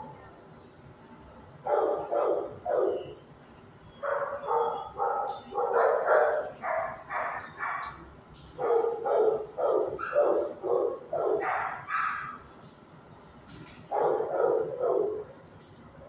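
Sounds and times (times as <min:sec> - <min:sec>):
dogs barking: 0:01.6 - 0:03.2, 0:04.0 - 0:12.6, 0:13.8 - 0:15.5.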